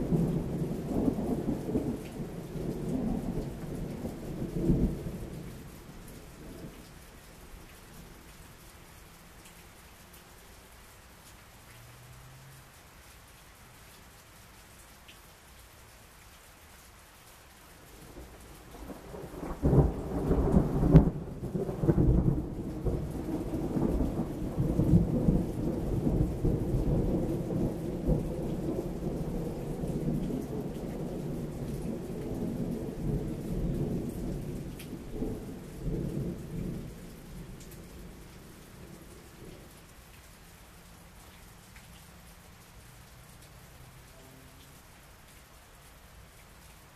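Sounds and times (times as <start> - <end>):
thunder rumbling: 0.0 - 6.9, 18.1 - 39.7
steady rain: 0.0 - 46.9.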